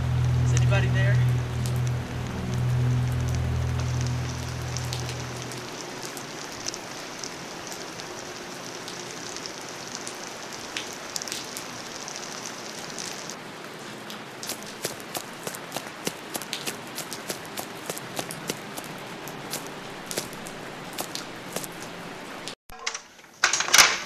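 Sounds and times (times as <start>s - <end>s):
low hum: 0.0s - 9.2s.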